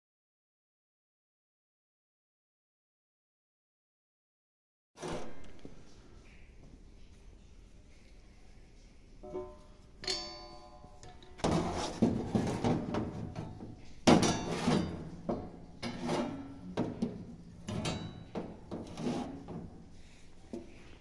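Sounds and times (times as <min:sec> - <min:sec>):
metal flap knocking and rattling: 0:09.2 - 0:20.7.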